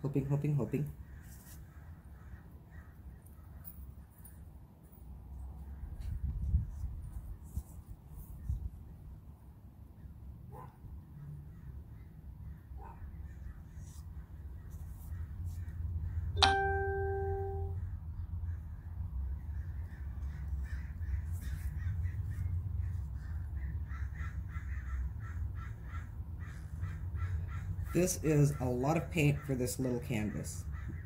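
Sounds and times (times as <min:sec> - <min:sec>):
ringing ding: 0:16.4 - 0:17.8
crows cawing: 0:19.9 - 0:28.0, 0:30.7 - 0:31.0.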